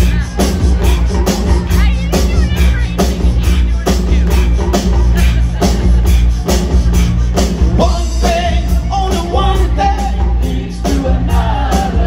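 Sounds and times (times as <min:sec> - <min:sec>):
live rock band playing: 0:00.0 - 0:12.0
lead vocals singing: 0:07.8 - 0:12.0.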